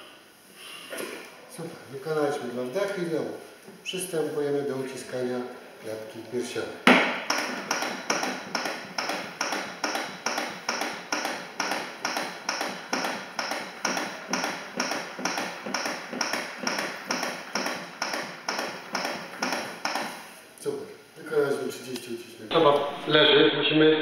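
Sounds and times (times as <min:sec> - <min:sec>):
manikins clicking rhythmically: 0:07.0 - 0:20.4.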